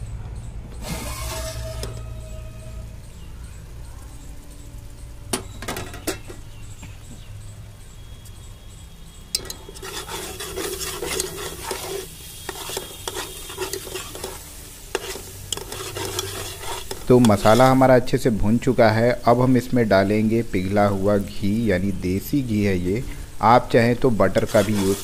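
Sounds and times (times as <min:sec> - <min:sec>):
metal ladle scraping a pot: 0:00.8 - 0:02.7, 0:09.3 - 0:17.9, 0:24.3 - 0:25.0
gravy sizzling in a pot: 0:00.8 - 0:25.0.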